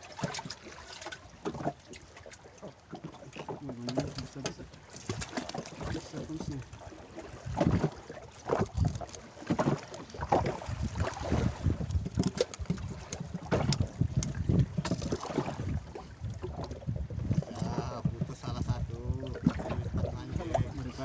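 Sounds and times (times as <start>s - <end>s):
water slapping boat hull: 0.0s - 21.0s
wind buffeting microphone: 4.4s - 21.0s.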